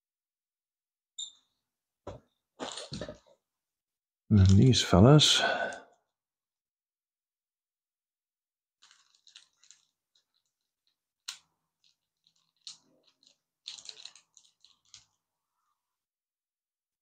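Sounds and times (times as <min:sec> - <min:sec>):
plastic bag crinkling: 0:08.8 - 0:15.3.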